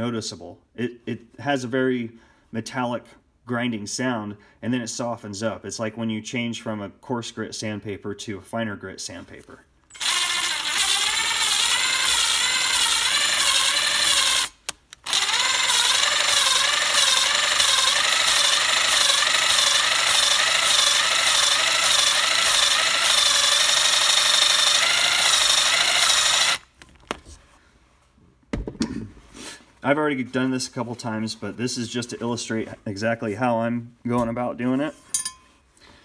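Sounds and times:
metallic valve grinding: 0:09.9 - 0:14.5.

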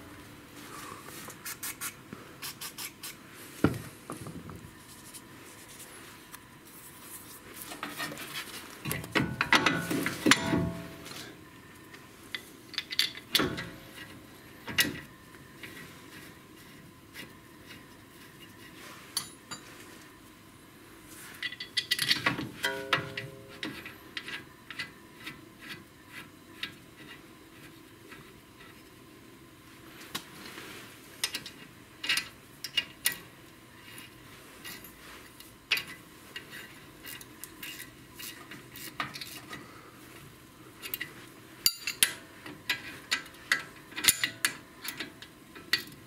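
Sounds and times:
metal clinks and scraping: 0:40.8 - 0:43.0.

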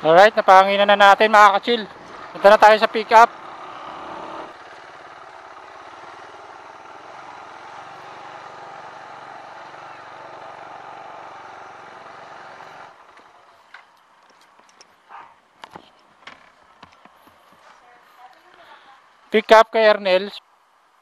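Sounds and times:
motorcycle riding at low speed: 0:00.0 - 0:13.6.

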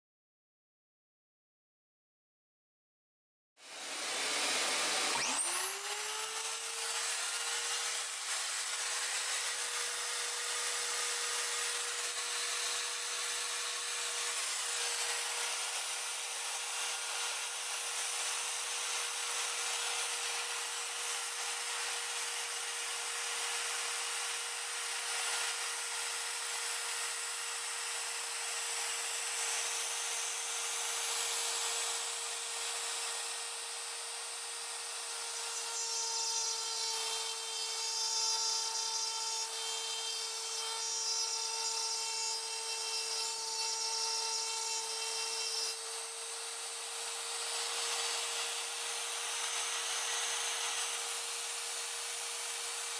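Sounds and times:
router bit rasping through plywood: 0:03.6 - 0:52.9
router spindle whine: 0:03.6 - 0:52.9.

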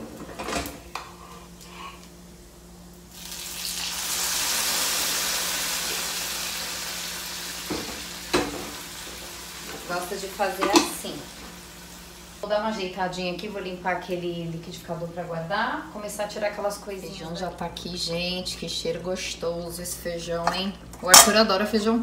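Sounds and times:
beans sizzling in hot oil: 0:03.0 - 0:12.6.

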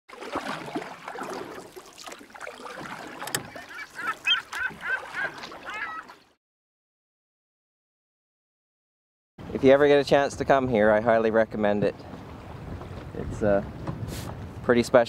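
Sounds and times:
honking bird calls: 0:03.4 - 0:06.3.

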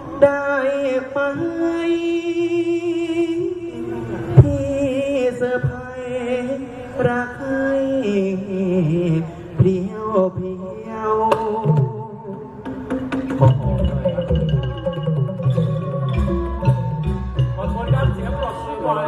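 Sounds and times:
amplified singer wavering voice: 0:00.0 - 0:12.7
live instrumental accompaniment: 0:00.0 - 0:19.0
sharp percussion strikes: 0:12.6 - 0:19.0.

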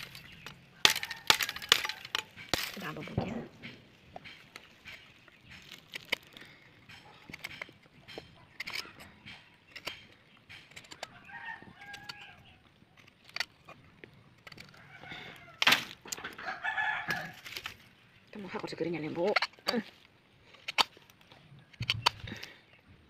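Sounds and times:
machete scraping and knocking stick: 0:00.0 - 0:13.8
rooster crowing: 0:00.9 - 0:02.1, 0:11.1 - 0:12.4, 0:16.4 - 0:17.4.

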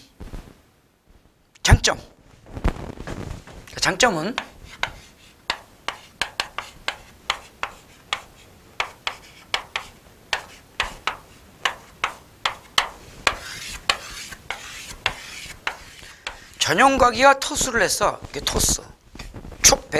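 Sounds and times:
chalk writing on chalkboard: 0:04.4 - 0:16.7.

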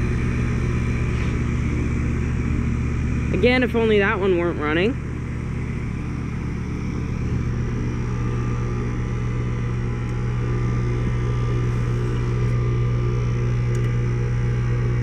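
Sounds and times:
fan noise: 0:00.0 - 0:15.0
low compressor hum: 0:00.0 - 0:15.0.

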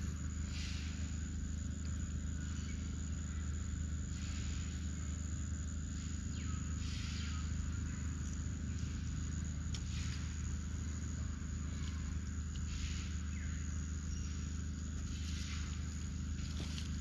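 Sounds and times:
even hiss: 0:00.0 - 0:01.4
low hum: 0:00.0 - 0:17.0.

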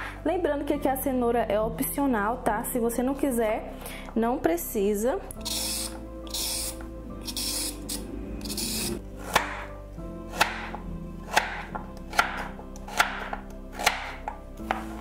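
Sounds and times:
soft background music: 0:00.0 - 0:15.0
peeler scraping carrot: 0:05.4 - 0:09.6
knife chopping on cutting board: 0:08.4 - 0:09.7, 0:10.3 - 0:15.0.

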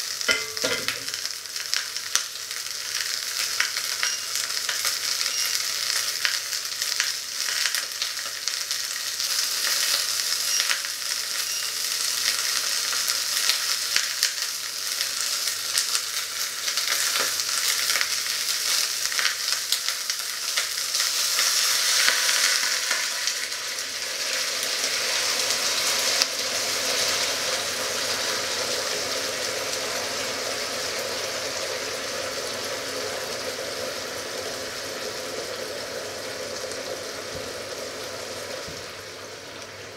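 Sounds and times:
chicken sizzling in a pot: 0:00.0 - 0:39.9
bubbling simmer: 0:23.3 - 0:39.9.

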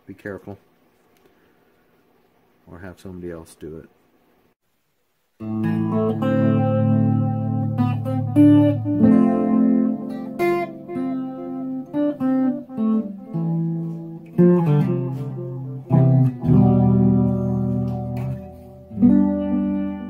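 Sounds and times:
guitar melody: 0:05.4 - 0:20.0.

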